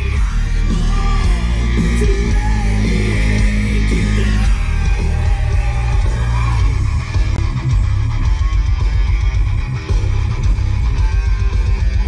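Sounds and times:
person singing: 0.0s - 7.1s
electric guitar: 0.0s - 12.0s
heavy bass: 0.0s - 12.0s
heavy rock music: 0.0s - 12.0s.

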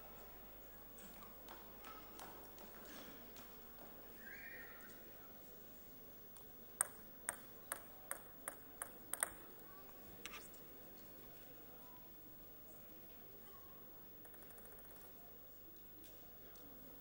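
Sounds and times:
faint hall murmur: 0.0s - 17.0s
table tennis ball bouncing: 6.8s - 9.5s, 14.2s - 15.1s.

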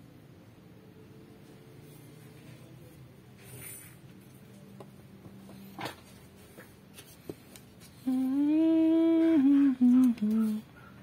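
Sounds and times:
man humming: 8.0s - 10.7s.

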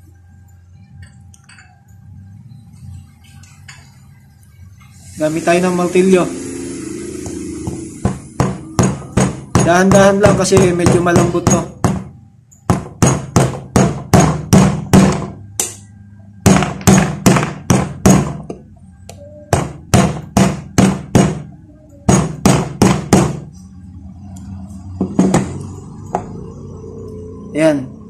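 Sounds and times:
hammer tapping pipe: 7.2s - 12.0s.

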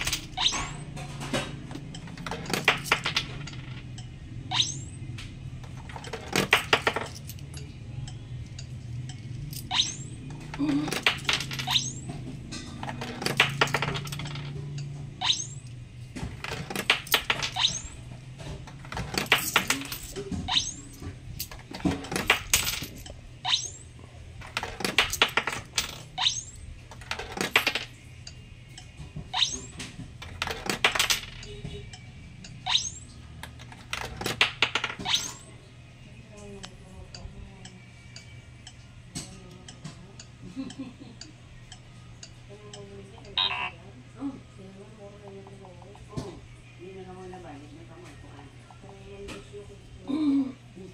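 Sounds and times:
coins clinking through vending machine: 0.0s - 5.0s, 5.6s - 23.7s, 24.4s - 28.4s, 29.4s - 31.8s, 32.4s - 35.6s.

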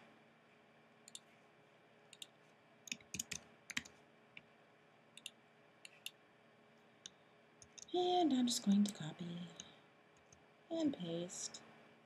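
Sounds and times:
mouse clicks: 2.1s - 2.3s, 5.2s - 6.2s
keyboard keystrokes: 2.9s - 3.9s.

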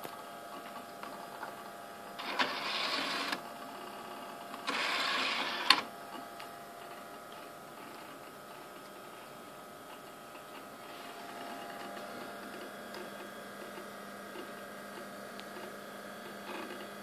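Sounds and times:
computer fan hum: 0.0s - 17.0s
cd drive tray motoring: 2.2s - 3.4s, 4.6s - 5.9s.

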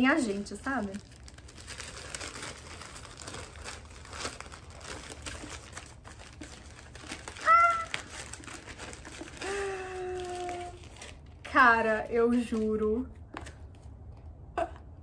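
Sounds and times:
wrapping paper crinkling: 0.0s - 12.8s
woman exclaiming: 7.4s - 8.0s.

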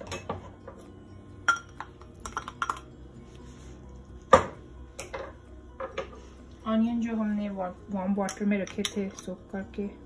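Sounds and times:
glass bowls clinking: 0.0s - 3.0s.

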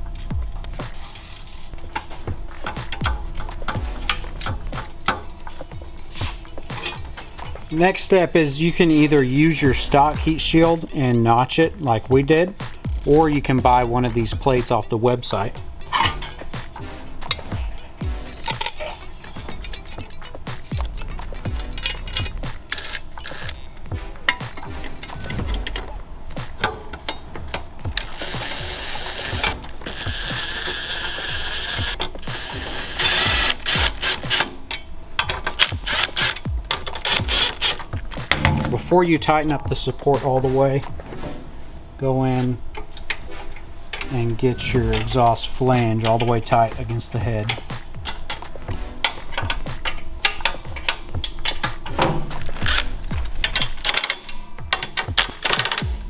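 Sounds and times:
background music with beat: 0.0s - 56.0s
ratchet wrench clicking: 19.5s - 23.7s, 27.9s - 38.0s, 52.5s - 56.0s
impact driver hammering: 28.0s - 34.5s, 35.6s - 38.8s.

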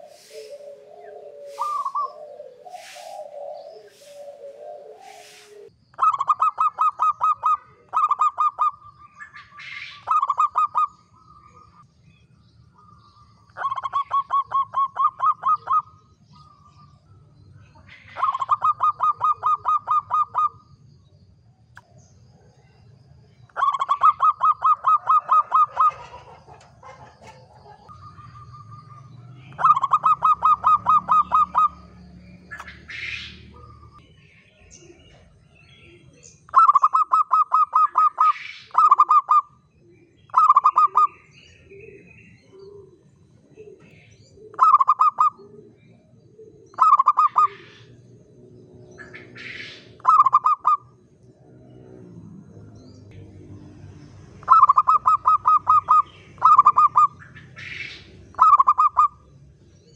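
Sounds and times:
dove staccato cooing: 0.0s - 8.9s, 10.0s - 11.0s, 13.6s - 16.8s, 17.8s - 20.6s, 23.5s - 34.0s, 36.5s - 39.5s, 40.2s - 48.0s, 49.2s - 50.9s, 54.4s - 59.2s.

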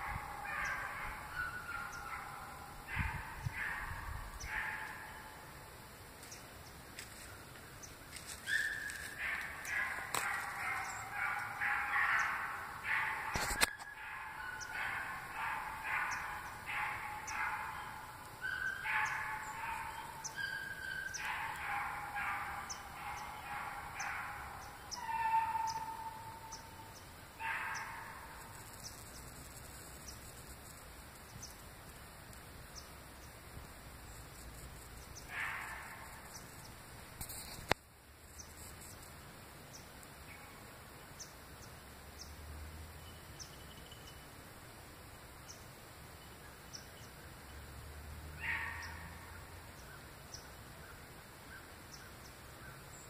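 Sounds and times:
dogs barking and baying: 0.0s - 5.4s, 8.1s - 28.8s, 35.2s - 36.5s, 48.4s - 49.3s.

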